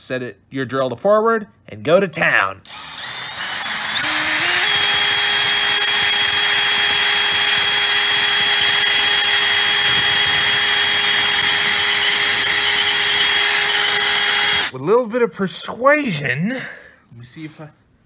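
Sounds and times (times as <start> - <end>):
cordless drill whining: 2.7 - 14.7.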